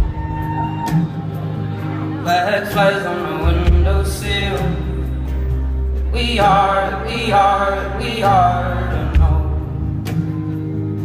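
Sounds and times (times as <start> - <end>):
acoustic guitar: 0.0 - 11.0
man singing: 2.2 - 10.1.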